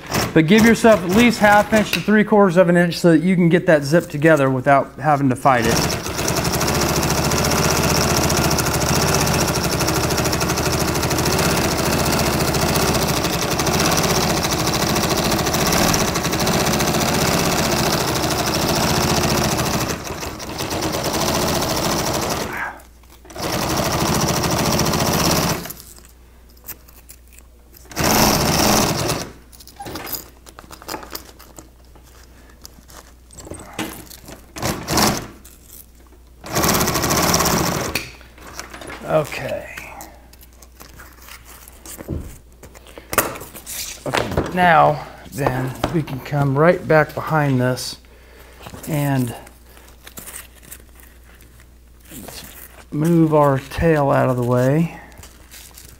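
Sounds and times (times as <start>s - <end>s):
sewing machine stitching: 0.0s - 2.0s, 5.5s - 25.8s, 27.9s - 30.0s, 34.5s - 35.4s, 36.4s - 38.1s.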